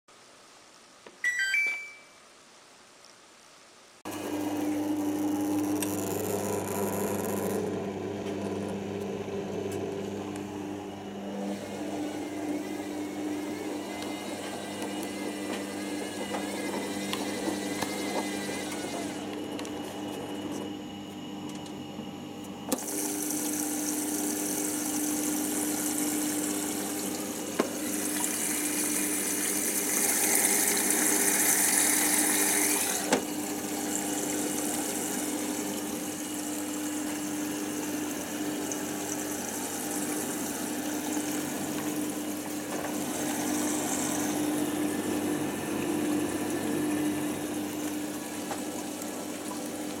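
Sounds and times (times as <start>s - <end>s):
water rushing into washing machine: 9.2s - 20.6s, 22.7s - 50.0s.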